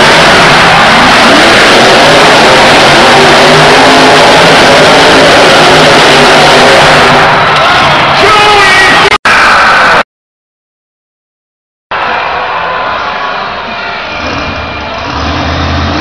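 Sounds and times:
truck engine revving: 0.0 - 8.2, 14.0 - 16.0.

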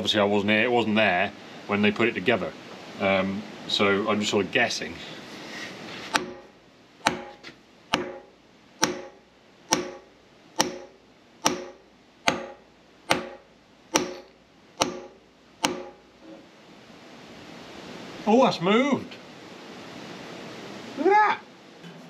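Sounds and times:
mallet striking metal shaft: 6.1 - 16.1.

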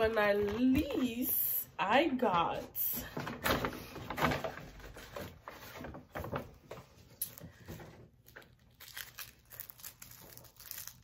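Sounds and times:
plastic snack package crinkling: 8.2 - 11.0.

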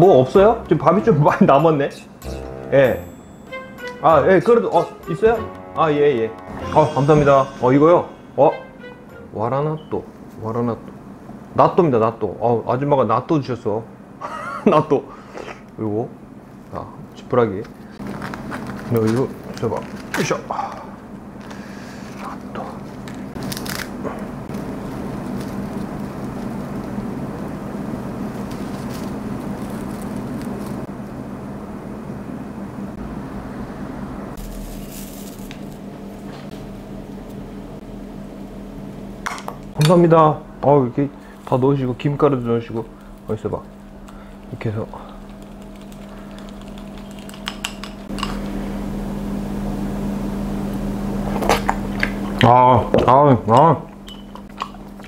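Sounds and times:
low room hum and rumble: 0.0 - 55.0
dry straw crackling: 24.5 - 30.9, 34.4 - 35.9
chopsticks clicking against bowl: 45.2 - 48.4.

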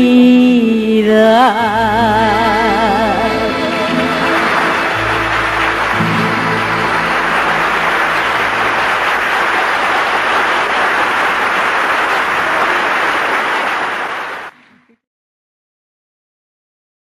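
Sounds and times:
band playing last notes: 1.8 - 11.6
audience applauding: 2.3 - 14.9.

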